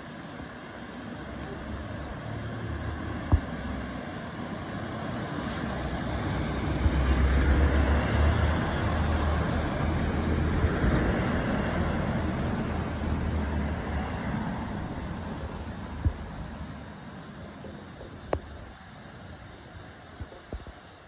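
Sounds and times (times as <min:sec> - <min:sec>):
passing vehicle rumble: 0:01.7 - 0:17.1.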